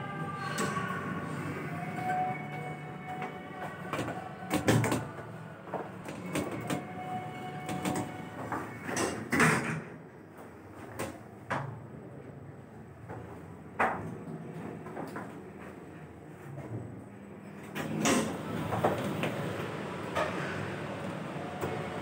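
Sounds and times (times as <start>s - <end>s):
elevator doors sliding shut: 0.0s - 9.9s, 17.7s - 22.0s.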